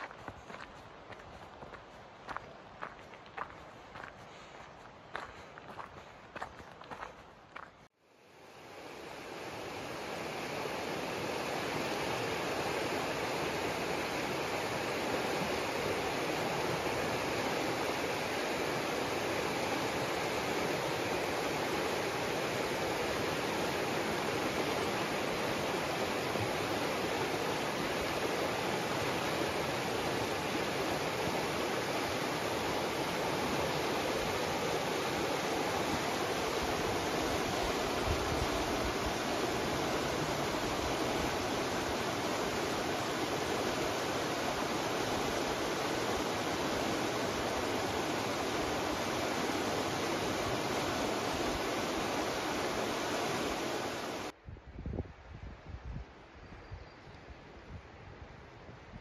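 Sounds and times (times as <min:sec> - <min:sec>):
river rushing over stones: 0:08.5 - 0:54.4.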